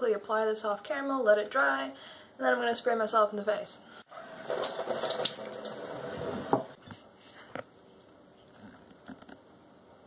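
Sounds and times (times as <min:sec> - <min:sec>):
water spraying from faucet: 0:04.1 - 0:06.7.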